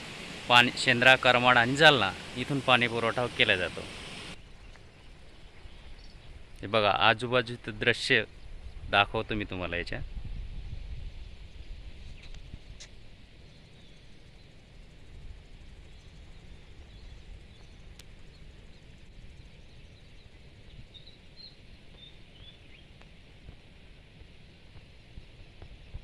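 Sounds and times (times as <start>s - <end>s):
wind rumble on microphone: 4.2s - 26.0s
faint bird chirps: 4.5s - 6.4s, 15.6s - 23.0s.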